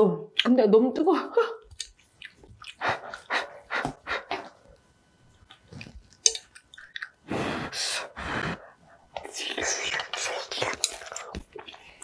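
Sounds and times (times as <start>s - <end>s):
person huffing breaths: 7.3s - 9.1s.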